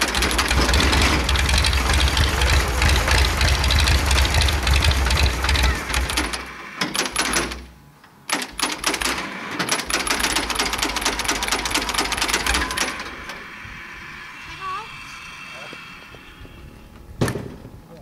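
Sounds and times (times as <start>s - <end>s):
tractor engine clattering: 0.0s - 13.6s.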